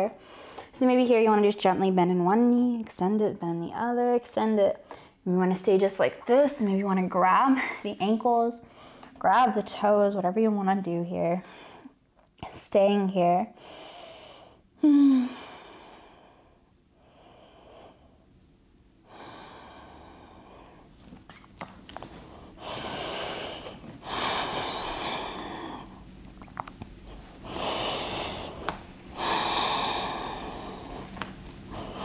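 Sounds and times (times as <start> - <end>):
person breathing deeply: 19.0 - 21.0, 22.2 - 26.0, 27.2 - 32.0.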